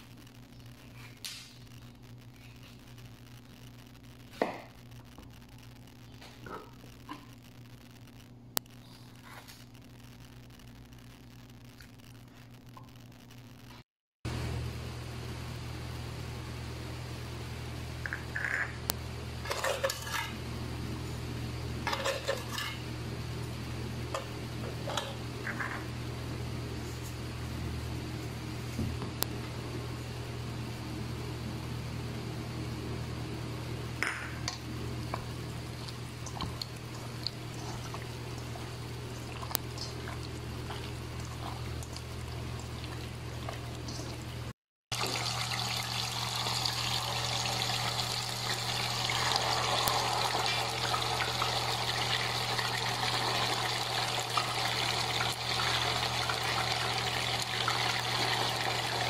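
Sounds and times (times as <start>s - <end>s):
steady low hum: 0.0s - 59.0s
chicken sizzling in hot oil: 34.8s - 59.0s.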